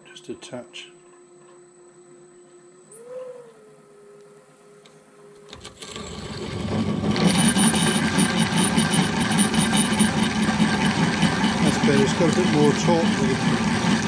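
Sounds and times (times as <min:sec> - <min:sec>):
drill press motor hum: 0:01.3 - 0:14.0
drill bit cutting metal: 0:07.1 - 0:14.0.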